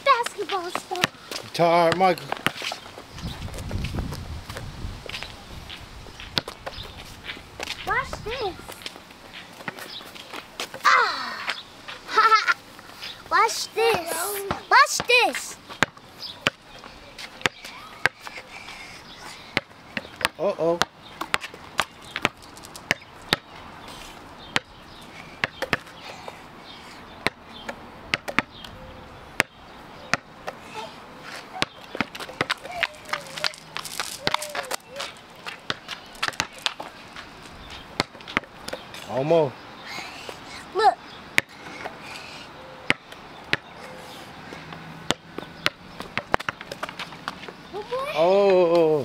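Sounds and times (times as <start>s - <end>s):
rubber balls bouncing on concrete: 0.1s - 4.7s, 13.5s - 18.6s, 19.4s - 23.7s, 24.4s - 26.4s, 27.2s - 38.8s, 41.3s - 42.0s, 42.9s - 43.7s, 44.7s - 49.0s.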